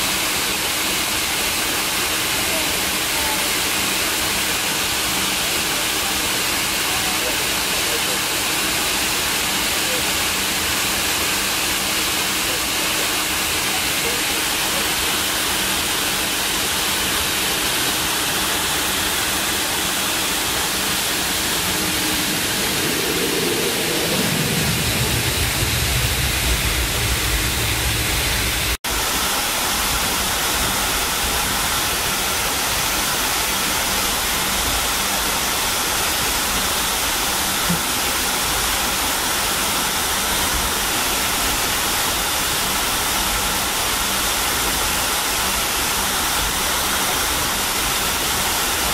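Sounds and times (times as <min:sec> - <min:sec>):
loud low rumble: 0:20.3 - 0:29.0
falling low tone: 0:20.8 - 0:28.8.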